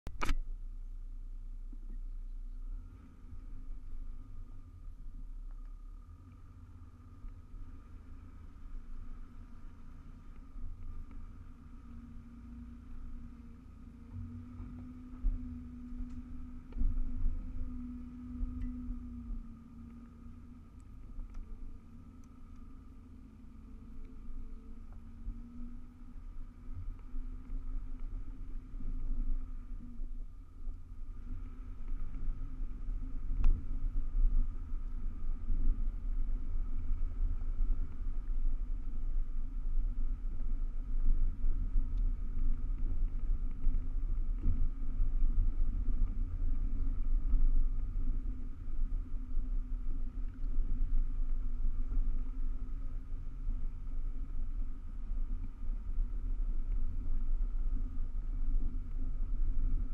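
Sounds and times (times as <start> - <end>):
vehicle rumbling on dirt track: 0.0 - 59.9
sharp click: 0.1 - 0.5.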